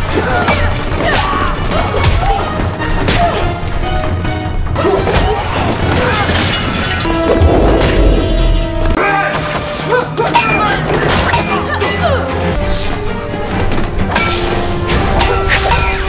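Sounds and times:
driving action music: 0.7s - 10.2s.

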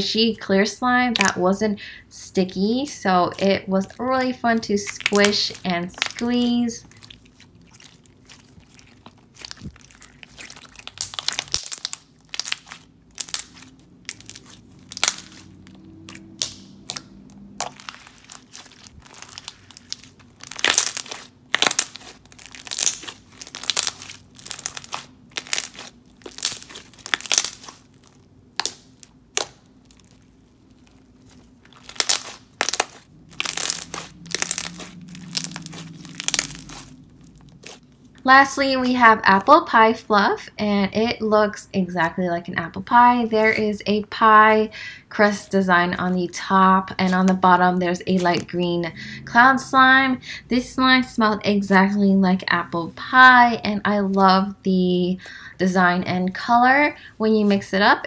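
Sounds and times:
slime popping and crackling: 1.1s - 1.4s, 2.7s - 38.2s.

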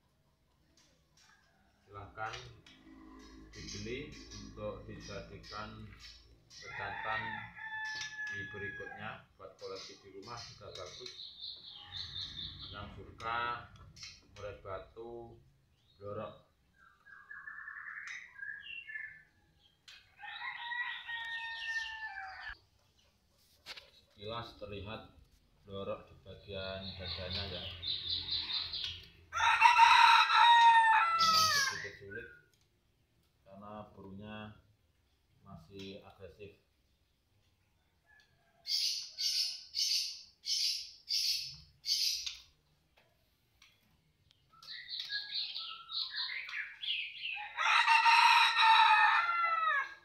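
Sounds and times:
bird harsh rasping calls: 2.6s - 8.7s, 9.6s - 13.0s, 26.7s - 32.2s, 38.6s - 42.5s, 44.7s - 47.6s
rooster crowing: 6.6s - 9.2s, 20.2s - 22.6s, 29.3s - 31.8s, 47.3s - 50.0s.

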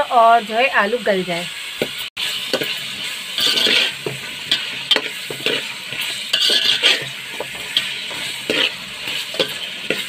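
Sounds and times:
food sizzling in oil: 0.0s - 10.0s
metal spoon scraping pot: 2.2s - 10.0s.

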